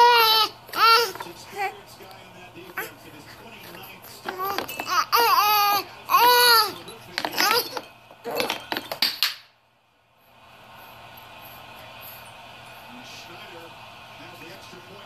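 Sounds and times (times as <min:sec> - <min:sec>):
baby vocalizing high-pitched: 0:00.0 - 0:01.7, 0:04.3 - 0:06.8.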